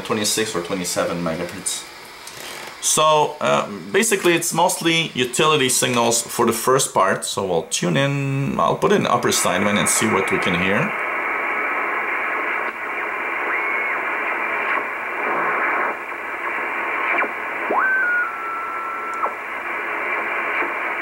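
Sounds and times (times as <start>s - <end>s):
radio static hiss: 0.0s - 21.0s
whistling radio tone: 9.3s - 21.0s.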